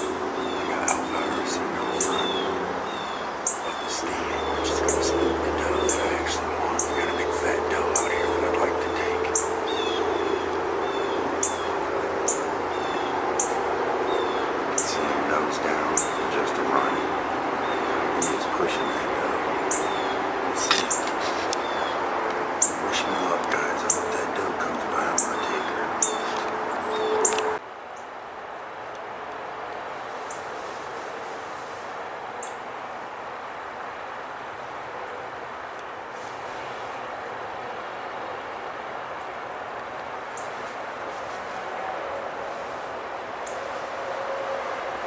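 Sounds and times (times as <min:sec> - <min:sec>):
high bird chirps: 0:00.0 - 0:15.2
low hum: 0:00.0 - 0:45.0
outdoor background noise: 0:00.0 - 0:45.0
steady background hiss: 0:00.0 - 0:45.0.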